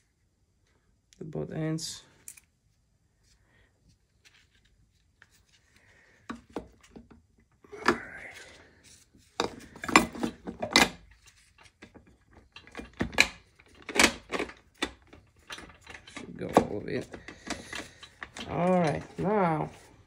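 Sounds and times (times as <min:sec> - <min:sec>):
metal clinks and knocks: 0:11.6 - 0:19.9.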